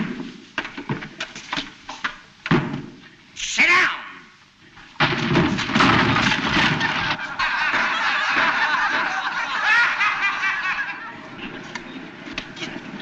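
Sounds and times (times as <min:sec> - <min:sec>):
crowd laughing: 0:06.5 - 0:12.0.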